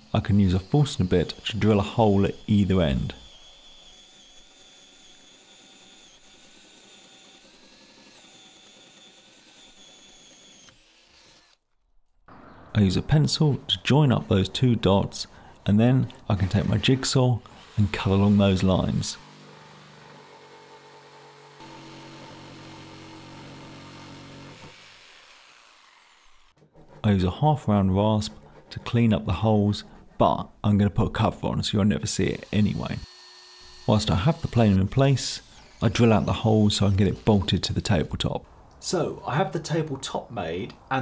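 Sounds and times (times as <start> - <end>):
drill motor whine: 0.0 - 11.6, 17.4 - 26.6, 32.2 - 37.8
jigsaw cutting wood: 0.0 - 11.7, 16.3 - 27.0, 32.1 - 38.3.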